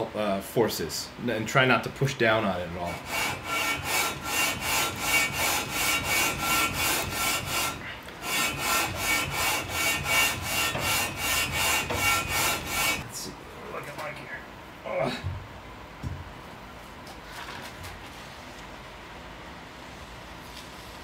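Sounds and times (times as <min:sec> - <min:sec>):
metal rasping on sandpaper: 0:02.9 - 0:13.0.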